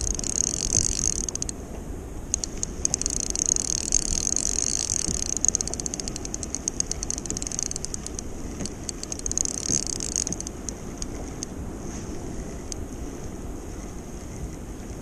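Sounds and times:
fishing reel drag clicking: 0.0s - 1.6s, 2.3s - 11.5s.

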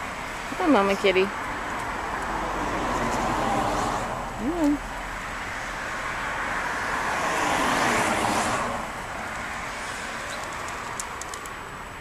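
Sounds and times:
car passing by: 1.5s - 11.0s.

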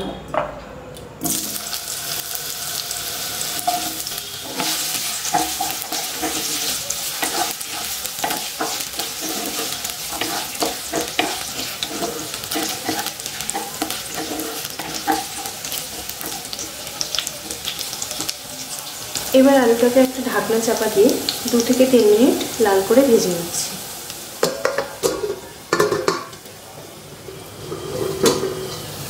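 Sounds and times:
potatoes sizzling in oil: 1.2s - 29.0s
wooden spatula scraping pan: 3.6s - 16.6s.

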